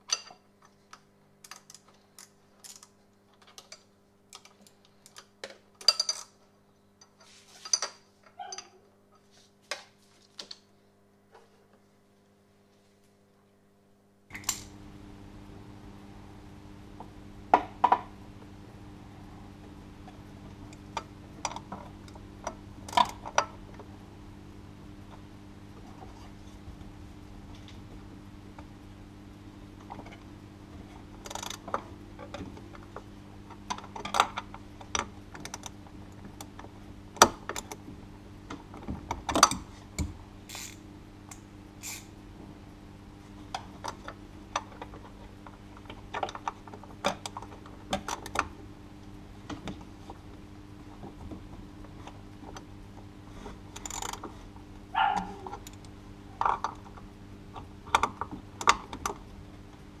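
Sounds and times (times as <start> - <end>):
steady low hum: 8.9 - 60.0
ratchet clicking: 40.5 - 40.8, 41.8 - 42.1.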